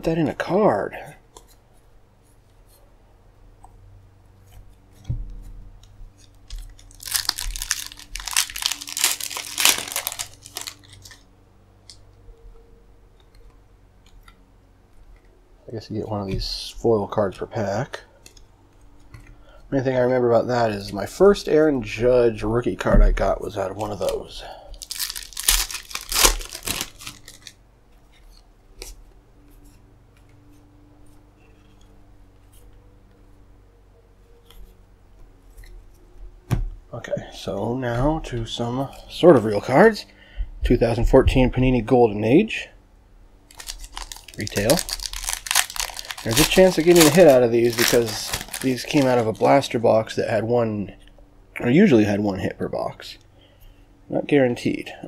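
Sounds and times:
cards being handled: 4.4 - 11.3, 23.6 - 32.8, 43.5 - 49.8
foil wrapper tearing and crinkling: 6.4 - 11.2, 23.7 - 27.6, 43.5 - 49.7.

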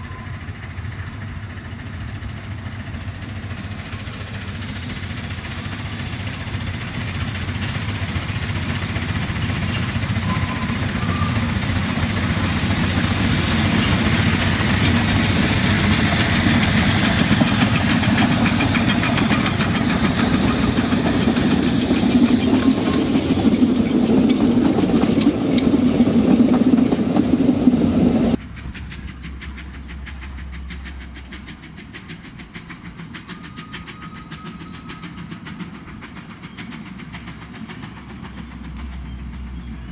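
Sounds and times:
train running past: 0.0 - 39.9
hiss of steam: 2.9 - 38.9.

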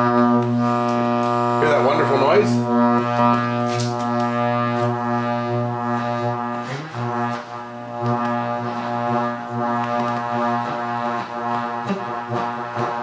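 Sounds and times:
radio interference buzz: 0.0 - 13.0.

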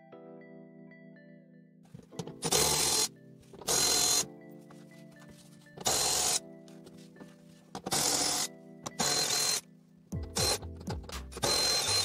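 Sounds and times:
background music: 0.0 - 12.0
cordless power driver spinning: 2.2 - 4.3, 5.8 - 6.4, 7.8 - 9.6, 11.4 - 12.0.

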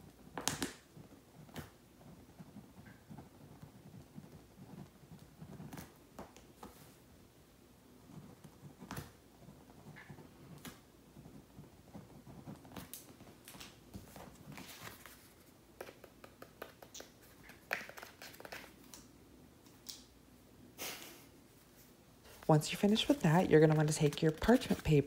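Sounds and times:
paper rustling: 12.1 - 16.0, 16.6 - 19.0, 22.2 - 25.0
small taps: 15.8 - 19.1.

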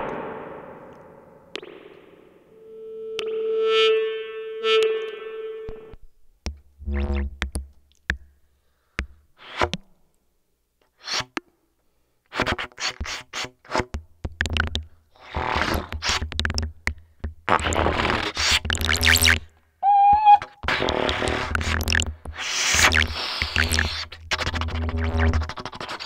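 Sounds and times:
low thumps: 0.0 - 2.5
held synth tone: 0.0 - 5.9, 19.8 - 20.5.

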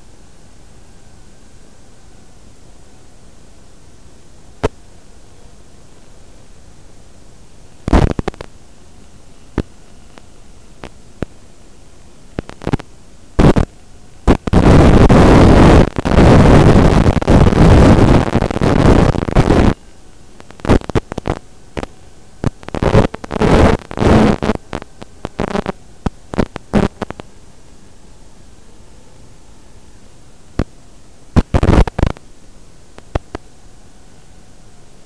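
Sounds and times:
video link static hiss: 0.0 - 35.0
loud noise bursts: 7.8 - 8.6, 12.4 - 27.3, 31.3 - 32.3.

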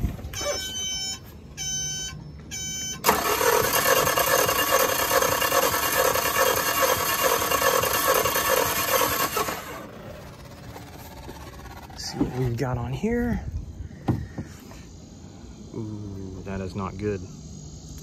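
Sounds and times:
short electronic beeps: 0.3 - 3.1
engine cranking on starter: 3.0 - 12.5.

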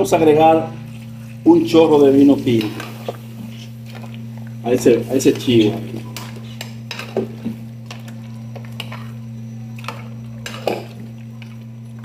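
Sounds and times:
steady low hum: 0.0 - 12.0
spoon scraping metal pot: 5.4 - 11.1.

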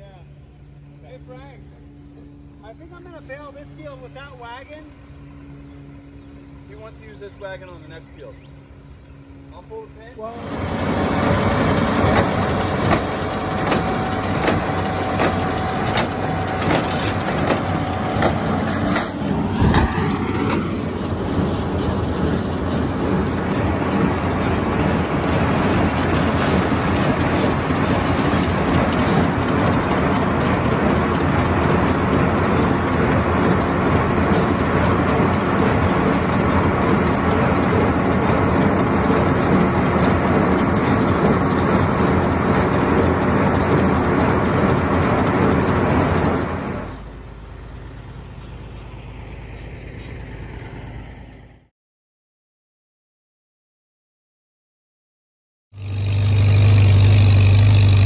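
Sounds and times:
tractor engine drone: 0.0 - 51.7, 55.8 - 58.0
baler mechanical clatter: 10.4 - 47.2.

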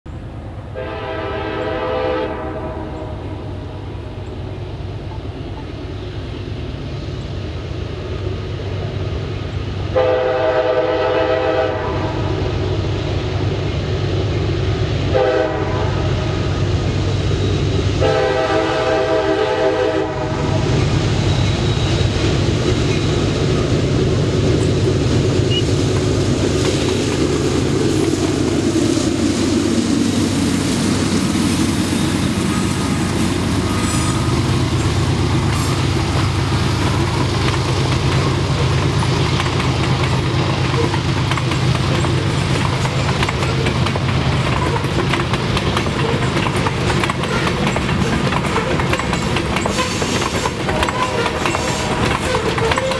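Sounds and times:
diesel engines rumbling: 0.1 - 52.9
locomotive horn blasts: 0.7 - 3.6, 9.9 - 12.4, 15.1 - 16.1, 18.0 - 20.6, 49.7 - 52.9.

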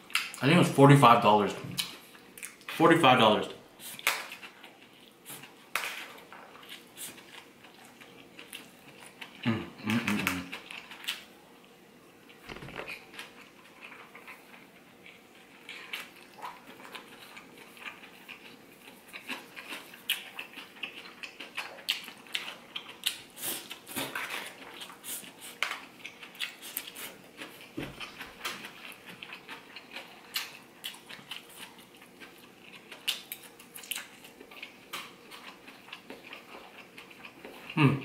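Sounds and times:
chewing and mouth sounds: 1.8 - 2.8, 3.8 - 11.3, 12.2 - 38.0.

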